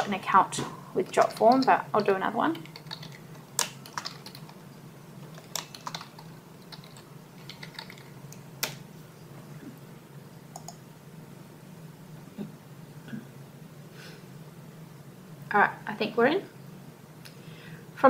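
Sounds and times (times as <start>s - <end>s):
steady low hum: 0.0s - 18.0s
computer keyboard typing: 1.1s - 4.6s, 5.2s - 8.8s, 10.5s - 10.8s.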